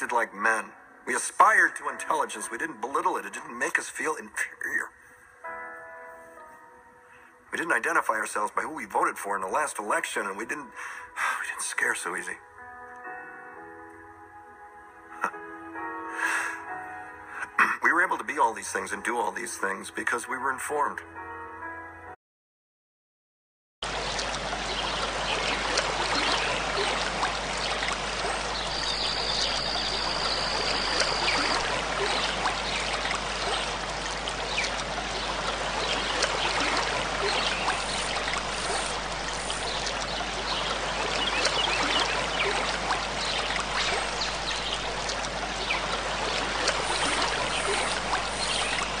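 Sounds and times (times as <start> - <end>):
stream trickling and babbling: 0.0 - 4.9, 7.1 - 12.4, 23.8 - 49.0.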